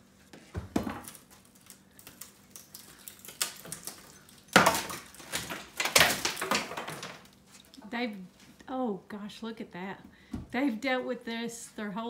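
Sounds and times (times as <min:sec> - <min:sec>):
wooden boards knocking and clattering: 0:00.5 - 0:01.1, 0:04.6 - 0:07.3.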